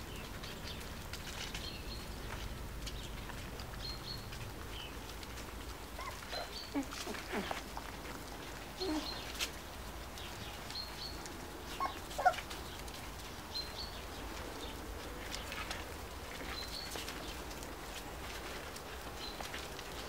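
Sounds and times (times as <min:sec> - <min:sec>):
dogs moving about: 0:00.2 - 0:20.0
small bird chirping: 0:08.8 - 0:09.5.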